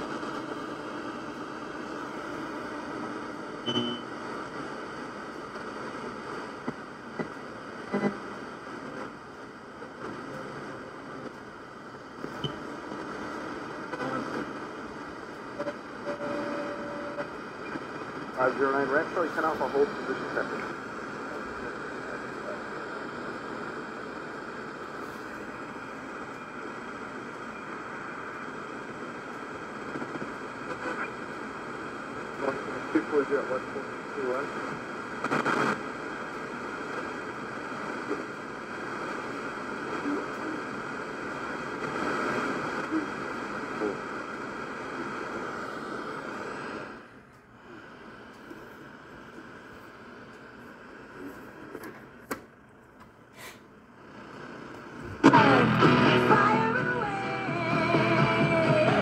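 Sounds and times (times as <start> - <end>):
faint radio broadcast: 0.0 - 59.0
radio static hiss: 0.0 - 59.0
radio whistle: 15.6 - 18.0.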